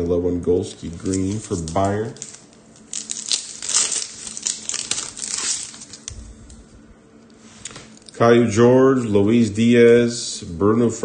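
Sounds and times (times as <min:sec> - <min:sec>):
cards rustling: 0:00.8 - 0:06.2
wrapper tearing and crinkling: 0:00.8 - 0:06.2.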